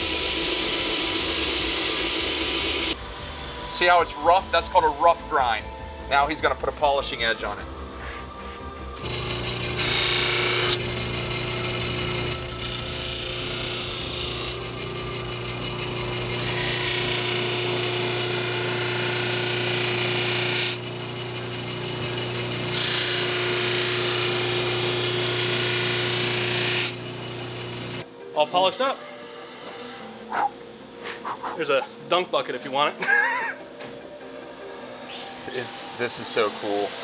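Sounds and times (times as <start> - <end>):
buffer grinder humming: 0.0 - 3.6, 8.9 - 28.0
knife blade grinding on wheel: 9.0 - 28.0.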